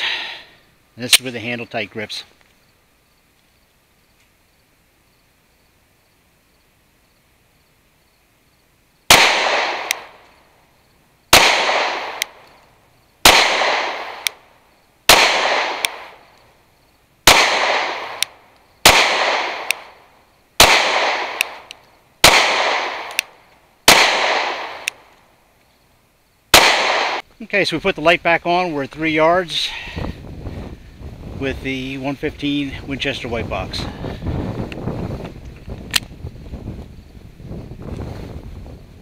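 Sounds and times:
pistol shots with short echo: 9.1s - 10.2s, 11.3s - 12.4s, 13.2s - 14.4s, 15.1s - 16.2s, 17.2s - 20.0s, 20.6s - 25.0s, 26.5s - 27.2s.

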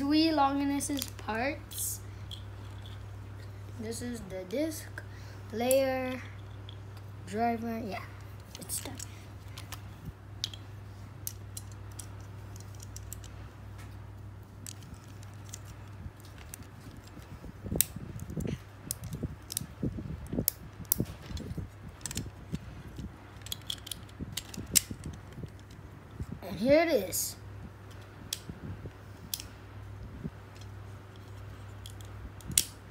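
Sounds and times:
steady low hum: 0.0s - 32.9s
plastic and metal parts clicking: 11.2s - 13.3s, 14.6s - 25.8s.

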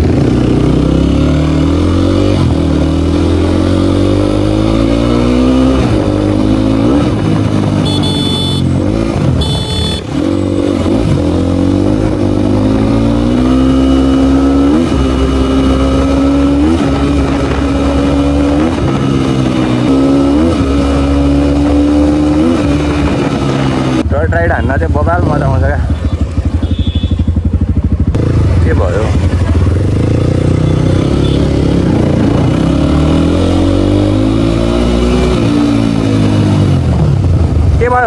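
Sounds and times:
motorcycle engine shifting gears: 0.0s - 24.1s.

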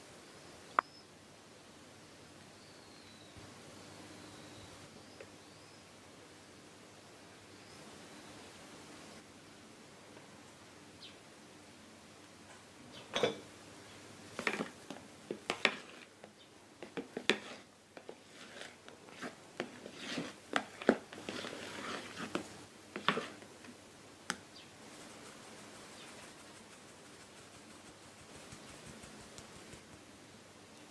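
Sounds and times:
spatula folding wet batter: 14.4s - 23.5s.

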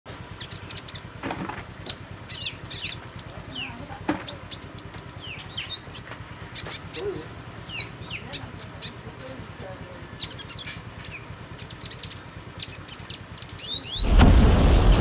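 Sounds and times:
songbird chirping and whistling: 0.4s - 1.0s, 1.8s - 9.0s, 10.2s - 14.2s.

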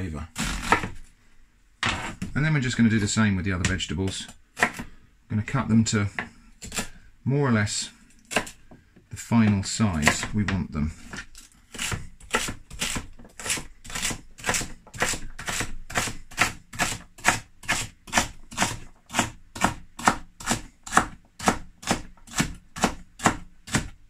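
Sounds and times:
knife chopping on plastic board: 0.6s - 1.0s, 3.6s - 4.9s, 6.1s - 7.0s, 8.2s - 8.8s, 9.4s - 24.0s.

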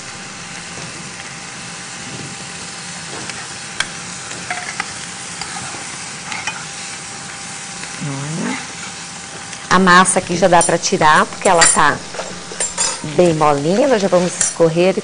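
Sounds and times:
onion and garlic sizzling in oil: 0.0s - 15.0s
spoon stirring and scraping pan: 3.2s - 7.0s, 8.8s - 14.9s.

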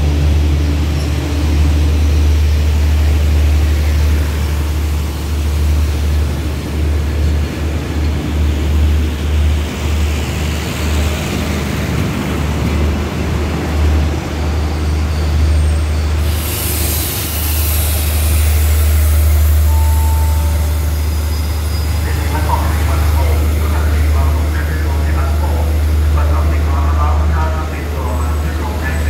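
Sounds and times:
train rumble: 0.0s - 29.0s
loud hiss of air: 16.2s - 19.7s.

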